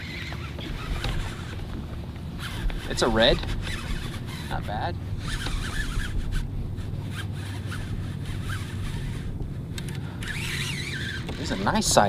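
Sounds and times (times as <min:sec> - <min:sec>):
fishing reel winding: 0:02.4 - 0:04.6, 0:05.2 - 0:12.0.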